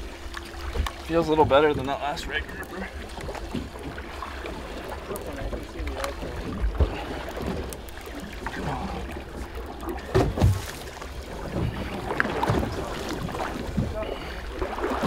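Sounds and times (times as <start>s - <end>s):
wind and sea rumble: 0.0s - 15.0s
dull knocks on boat: 10.0s - 10.9s.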